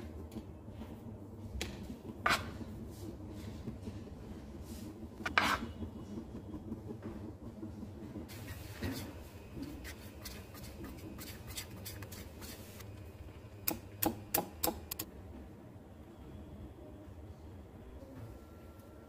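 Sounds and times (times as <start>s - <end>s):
whisk beating batter in bowl: 1.6s - 13.0s.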